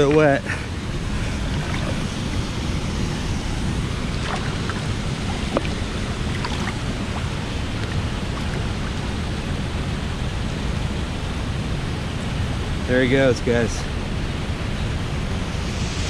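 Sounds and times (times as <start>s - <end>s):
river water rushing: 0.0s - 12.8s
small water splashes: 1.4s - 2.5s, 4.0s - 9.2s.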